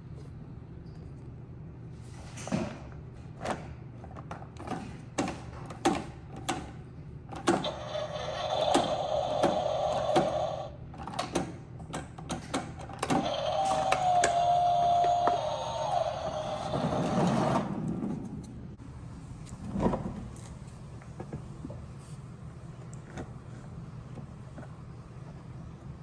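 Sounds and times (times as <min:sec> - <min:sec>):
mechanical whirr: 0:07.4 - 0:10.8, 0:12.9 - 0:18.2
toy truck arm clicking and knocking: 0:08.5 - 0:15.5.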